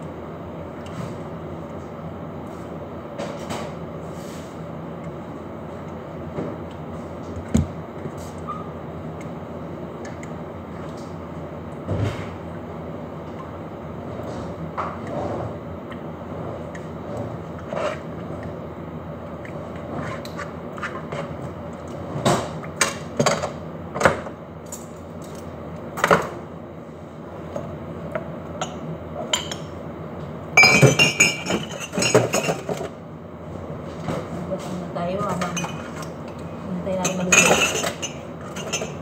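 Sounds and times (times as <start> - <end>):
kitchenware clinking and clattering: 30.6 - 32.9, 34.6 - 36.4, 37.0 - 39.0.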